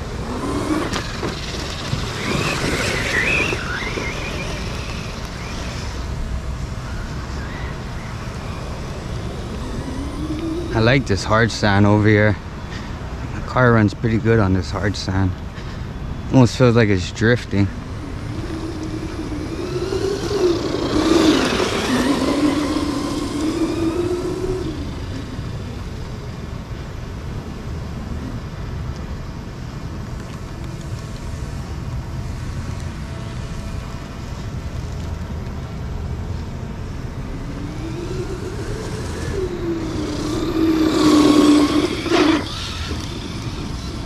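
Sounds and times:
toy truck electric motor whining: 0.0s - 6.2s, 7.2s - 11.1s, 17.7s - 26.3s, 37.2s - 44.0s
steady low rumble: 0.0s - 30.2s.

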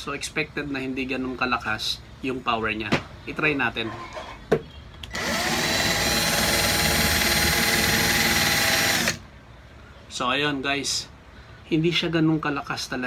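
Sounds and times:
cordless drill drilling into wood: 5.1s - 9.2s.

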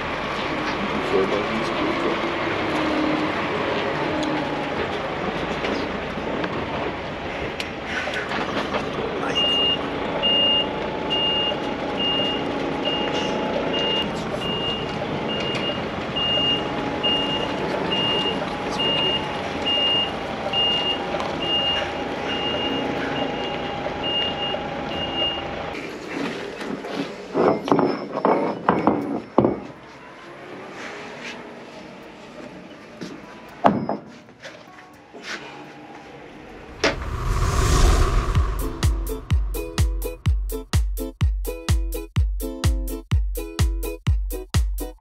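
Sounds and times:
truck reversing alarm beeping: 9.3s - 25.7s.

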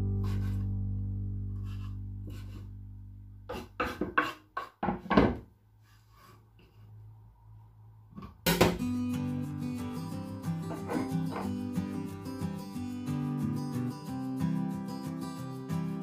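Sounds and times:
knife chopping on wooden board: 3.5s - 5.4s.

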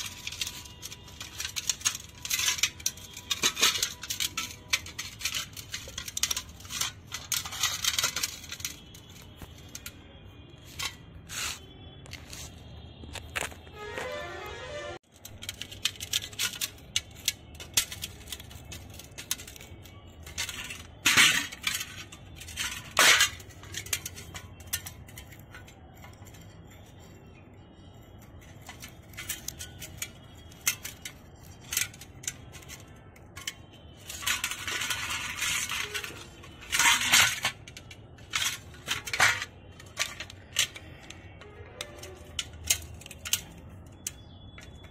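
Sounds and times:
metal clicks and clinks: 0.0s - 12.3s, 15.1s - 44.9s
rasping scrape: 10.7s - 12.6s.

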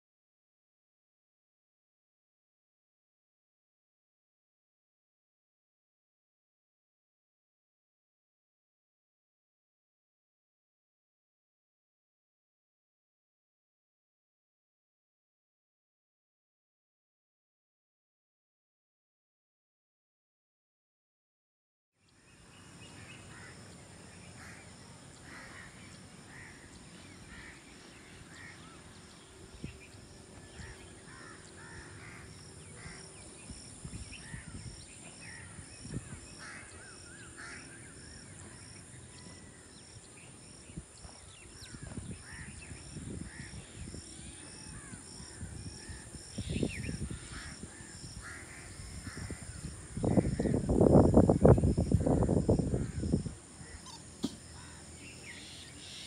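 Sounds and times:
crows cawing: 23.3s - 23.6s, 24.4s - 27.6s, 28.3s - 28.8s, 30.5s - 33.2s, 35.2s - 35.6s, 36.4s - 38.5s, 41.6s - 42.6s, 47.1s - 50.6s, 52.7s - 55.4s
wind buffeting microphone: 27.1s - 37.0s, 39.5s - 54.4s.

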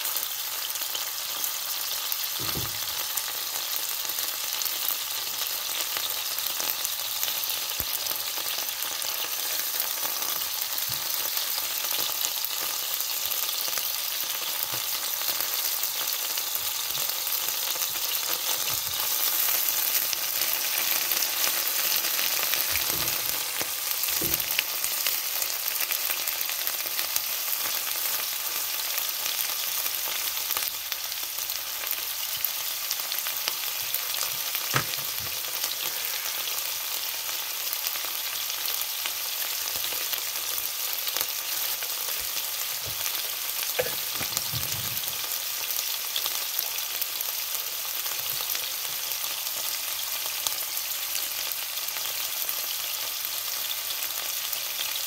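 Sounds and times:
food sizzling in hot oil: 0.0s - 55.0s
wooden utensil knocking in pan: 24.2s - 24.5s, 34.7s - 35.4s, 43.8s - 45.1s.

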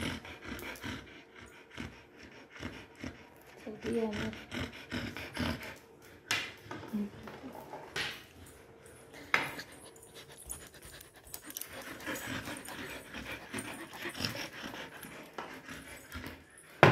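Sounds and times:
dog panting: 0.0s - 6.3s, 8.5s - 16.9s
dog gnawing wooden stick: 9.5s - 16.5s.

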